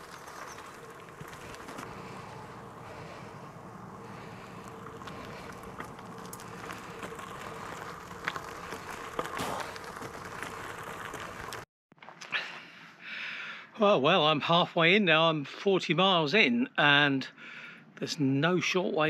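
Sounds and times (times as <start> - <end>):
faint hum: 0.0 - 11.5
bicycle tyre riding noise: 0.0 - 11.7
sharp clicks from bumps: 0.0 - 12.3.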